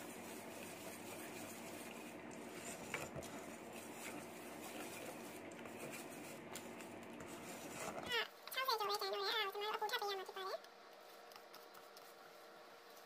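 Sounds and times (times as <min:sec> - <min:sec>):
wire whisk stirring and scraping: 0:00.0 - 0:08.2.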